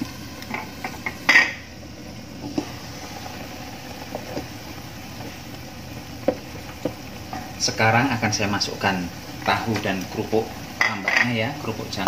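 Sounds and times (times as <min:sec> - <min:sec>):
gas burner rushing: 0:00.0 - 0:12.0
cookware clatter: 0:00.5 - 0:01.6, 0:10.8 - 0:11.4.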